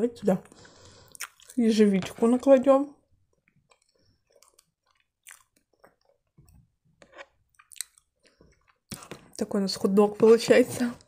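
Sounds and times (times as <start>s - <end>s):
light chewing: 0.4s - 1.6s, 3.3s - 9.3s
soft squishes and clicks: 3.3s - 9.5s.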